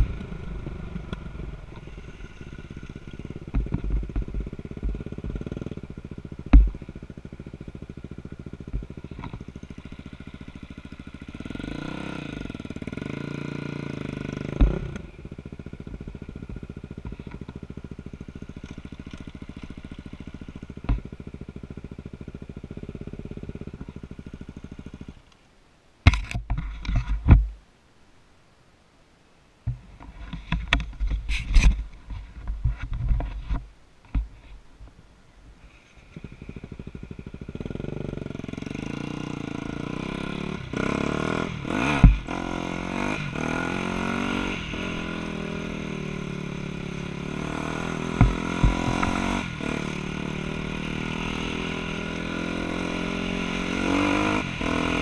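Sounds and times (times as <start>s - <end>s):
irregular rumbling and knocking: 0.0s - 7.1s, 47.8s - 49.5s
dirt bike engine idling and revving: 0.0s - 25.3s, 35.6s - 55.0s.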